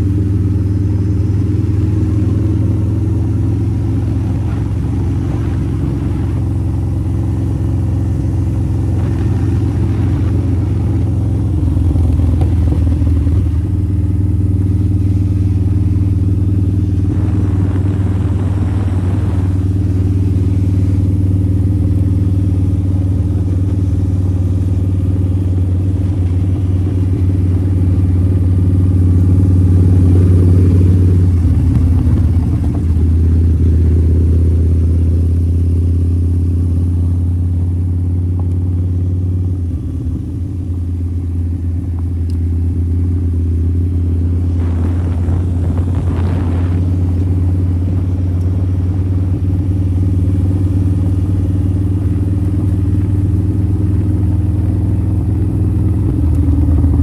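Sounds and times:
rush of noise: 0.0 - 37.9, 39.5 - 57.0
motorcycle engine running: 0.0 - 57.0.

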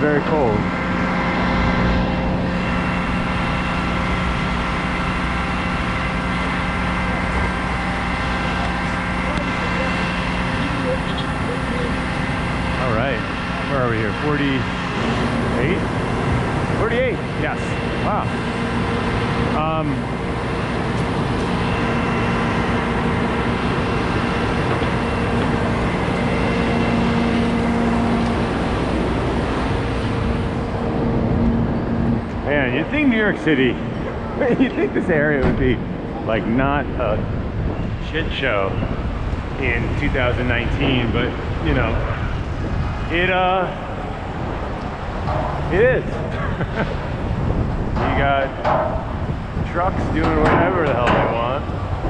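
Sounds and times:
heavy vehicle engine humming: 0.0 - 52.0
street traffic: 0.0 - 52.0.

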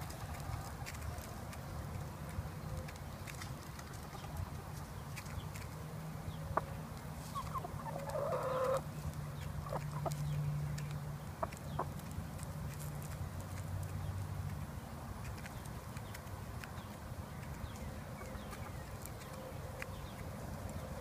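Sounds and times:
hens pecking: 0.0 - 21.0
hens clucking: 6.5 - 12.8.

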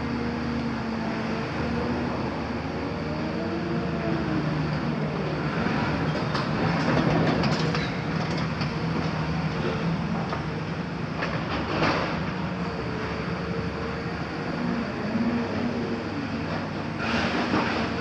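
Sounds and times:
excavator engine and hydraulics: 0.0 - 18.0
clattering metal and rubble: 6.1 - 9.8.

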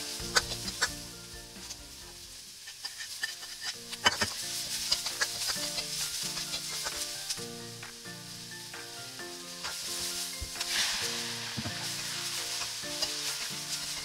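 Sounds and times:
metal spatula scraping wok: 0.0 - 1.0, 2.6 - 7.4, 9.4 - 14.0
vegetables sizzling in hot oil: 0.0 - 14.0.

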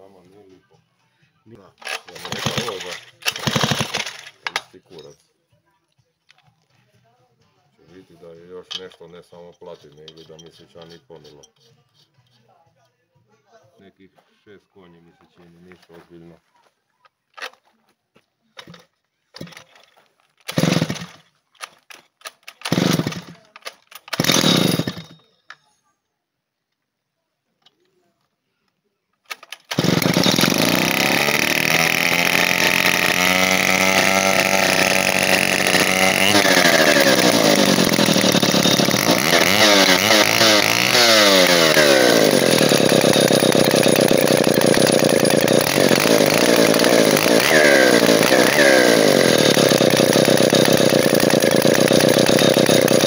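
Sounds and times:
chainsaw engine revving: 1.8 - 5.0, 20.4 - 21.3, 22.2 - 25.2, 29.3 - 53.0.

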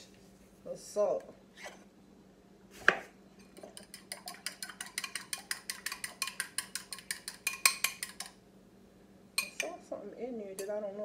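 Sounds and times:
fork beating egg in glass bowl: 3.4 - 8.4, 9.4 - 9.7.

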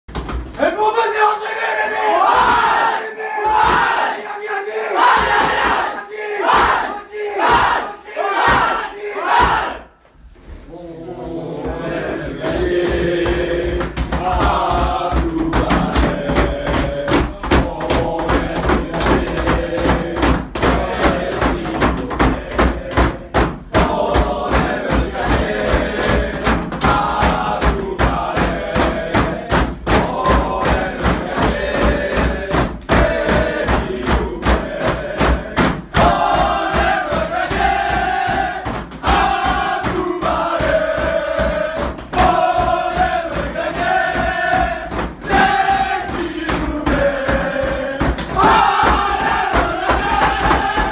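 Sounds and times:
men chanting together: 1.0 - 9.9, 10.7 - 50.9
hands beating on floor: 12.4 - 50.9.

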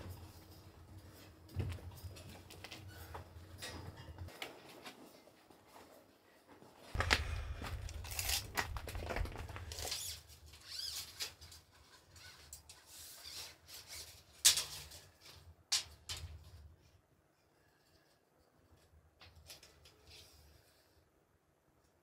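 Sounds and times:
tape measure scraping and rattling: 7.9 - 16.3.

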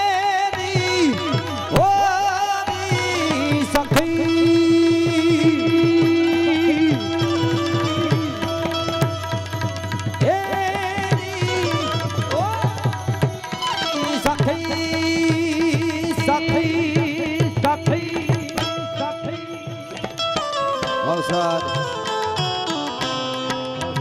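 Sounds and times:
tabla drumming: 0.0 - 24.0.

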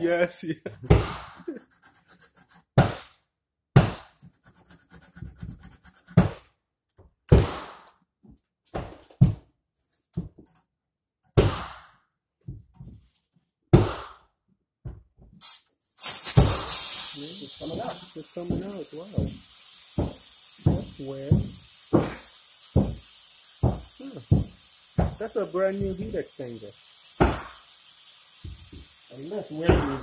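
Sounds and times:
hand tools thunking on tubing: 20.0 - 22.2, 23.6 - 25.2.

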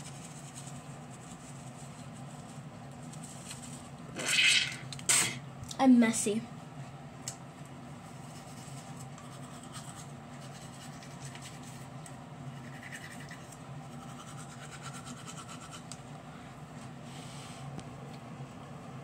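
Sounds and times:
low steady hum: 0.0 - 19.0
toothbrush scrubbing teeth: 8.2 - 11.8, 12.5 - 16.0.

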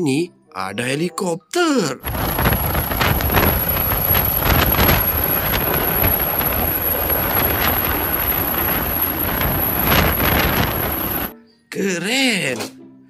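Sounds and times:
helicopter rotor blades chopping: 2.0 - 11.3
turbine whine: 2.0 - 11.3
wind buffeting microphone: 2.0 - 11.3.

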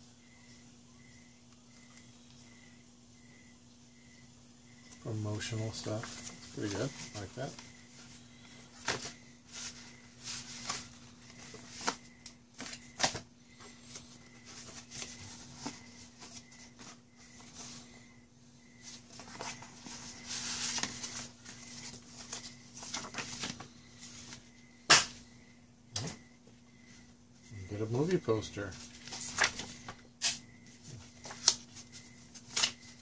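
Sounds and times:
faint steady hum: 0.0 - 33.0
paper and cards shuffling: 5.9 - 12.0, 12.6 - 17.9, 18.8 - 24.5, 28.7 - 33.0.

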